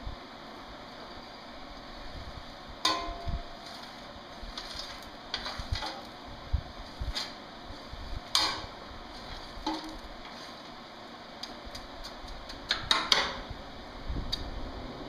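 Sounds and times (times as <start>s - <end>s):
metal poker scraping coal: 2.9s - 6.2s, 6.8s - 10.8s.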